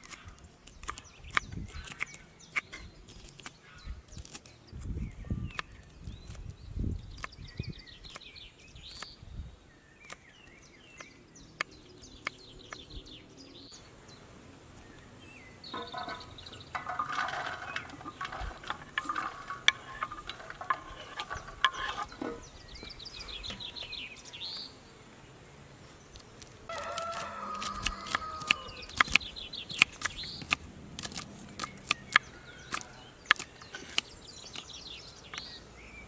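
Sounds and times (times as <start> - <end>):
small birds chirping: 0.0 - 36.0
sharp clicks and knocks: 15.7 - 23.7.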